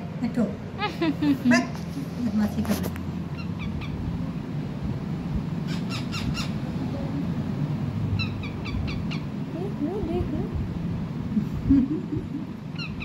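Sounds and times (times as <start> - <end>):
steady low hum: 0.0 - 13.0
parakeets chirping: 3.3 - 4.1, 5.6 - 6.7, 8.1 - 9.4, 12.7 - 13.0.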